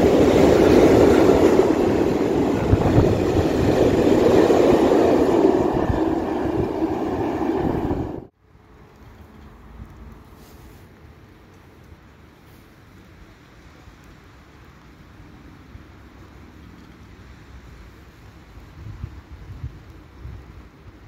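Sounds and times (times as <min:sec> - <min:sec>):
freight train wheels clattering: 0:00.0 - 0:08.3.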